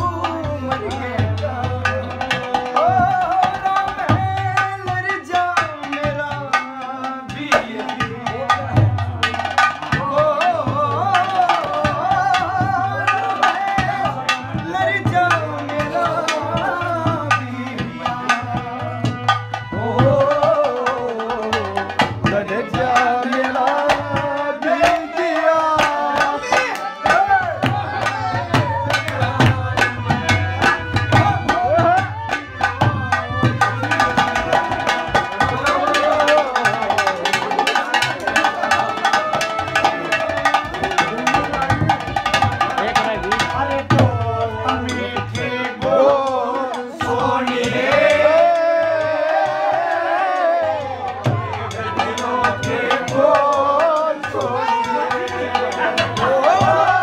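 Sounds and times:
drums beating fast rhythm: 0:00.0 - 0:57.0
harmonium: 0:00.0 - 0:57.0
man singing: 0:00.0 - 0:57.0.

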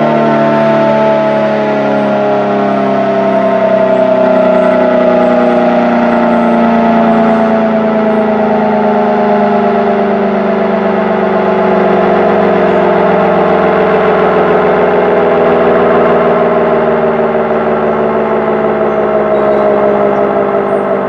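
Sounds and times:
electromechanical siren winding down: 0:00.0 - 0:21.0.

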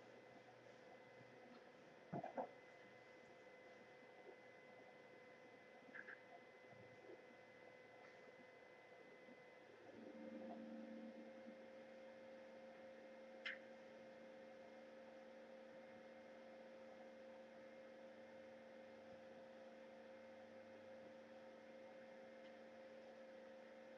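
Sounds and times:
faint electrical hum: 0:00.0 - 0:23.9.

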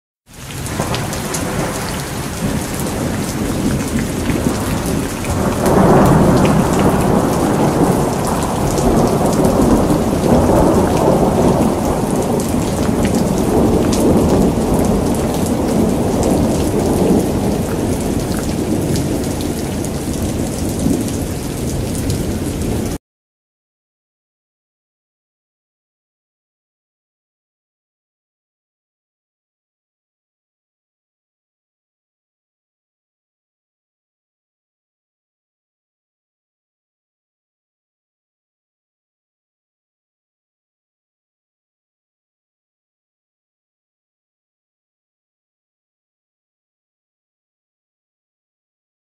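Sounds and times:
heavy rain on leaves and paving: 0:00.3 - 0:23.0
low thunder rumbling: 0:00.4 - 0:23.0.

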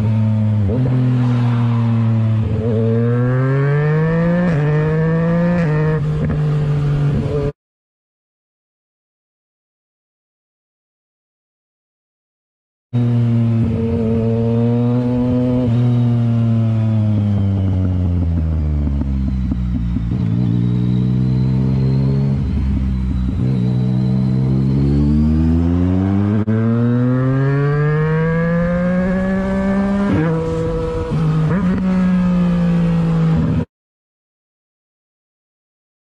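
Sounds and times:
motorcycle engine revving: 0:00.0 - 0:07.5, 0:13.0 - 0:33.7.

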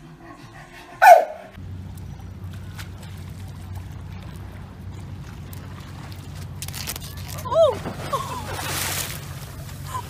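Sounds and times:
steady low hum: 0:00.0 - 0:10.0
water lapping against concrete: 0:01.1 - 0:10.0.

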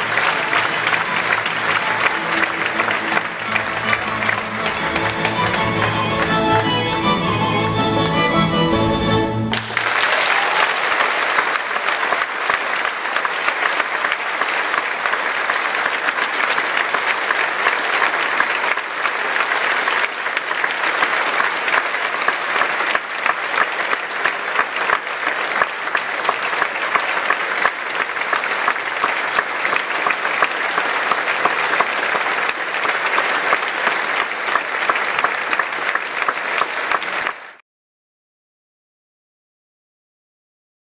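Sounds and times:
audience applauding: 0:00.0 - 0:08.6, 0:09.4 - 0:37.6.

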